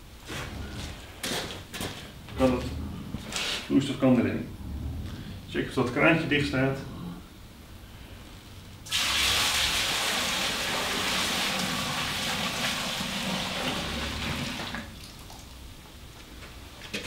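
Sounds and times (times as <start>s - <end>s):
liquid gushing into boiler: 8.8s - 15.7s.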